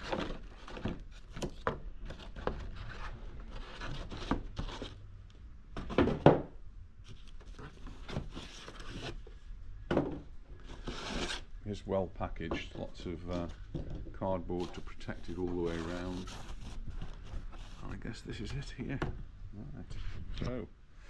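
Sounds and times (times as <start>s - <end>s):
cardboard rubbing and scraping: 0.0s - 5.0s, 7.1s - 9.3s, 10.6s - 11.5s, 14.5s - 18.1s.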